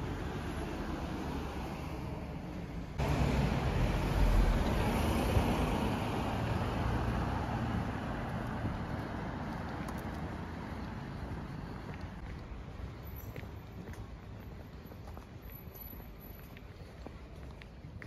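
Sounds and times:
car passing close by: 0:03.0 - 0:09.5.

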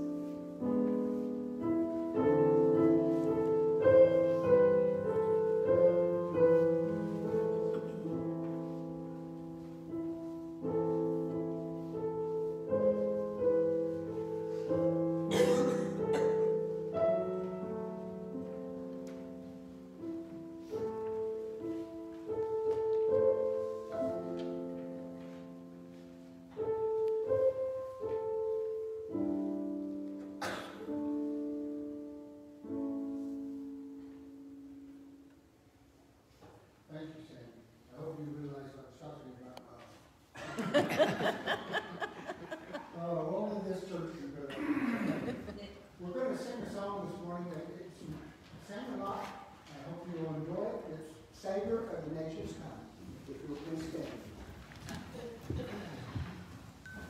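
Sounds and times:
piano playing slow chords: 0:00.0 - 0:36.3, 0:56.5 - 0:57.0.

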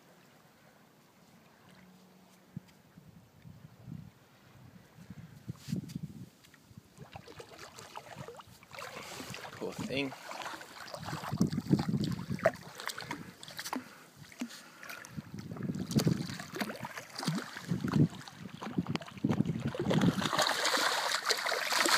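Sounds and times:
wind rumbling on microphone: 0:02.5 - 0:10.0, 0:10.8 - 0:13.4, 0:15.0 - 0:20.4.

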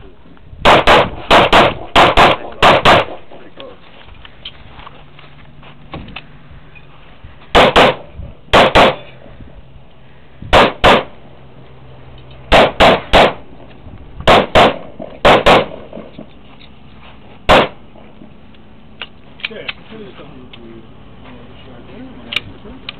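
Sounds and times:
pistol shots: 0:00.6 - 0:03.4, 0:07.5 - 0:09.1, 0:10.5 - 0:11.2, 0:12.5 - 0:13.4, 0:14.2 - 0:16.1, 0:17.5 - 0:17.8.

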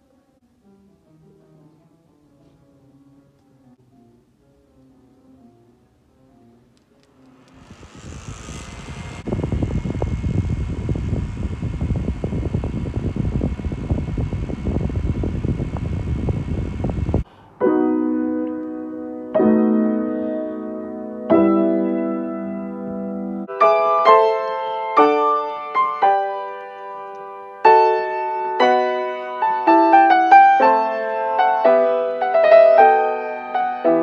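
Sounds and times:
handheld fan running: 0:07.1 - 0:17.3
slow piano chords: 0:17.2 - 0:34.0.

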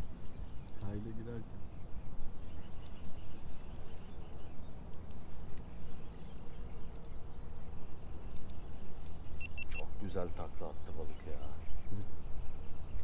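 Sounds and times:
faint high ticks: 0:06.8 - 0:07.2.

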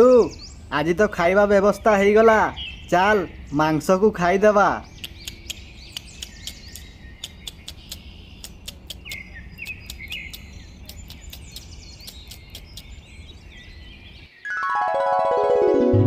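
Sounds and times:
birds chirping: 0:00.0 - 0:14.6
sharp ticks: 0:05.0 - 0:12.9.

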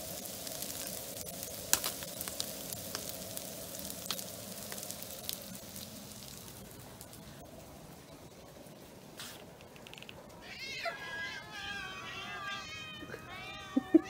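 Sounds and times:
oil sizzling in frying pan: 0:00.0 - 0:07.4
crackles and pops of frying: 0:00.0 - 0:08.5.

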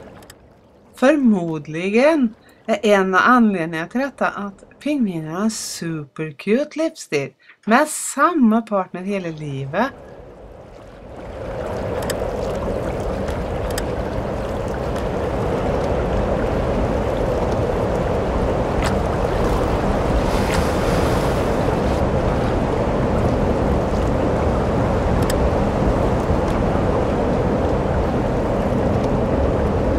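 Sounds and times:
faint clicks: 0:00.0 - 0:00.4, 0:12.0 - 0:12.2, 0:13.2 - 0:13.9, 0:25.2 - 0:25.4.

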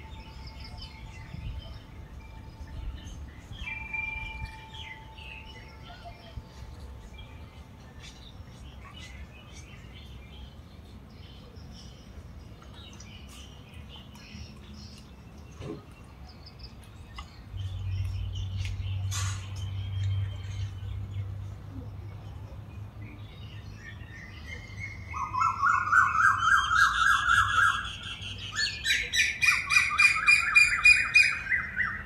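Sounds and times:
bird calling in repeated notes: 0:24.5 - 0:32.0.

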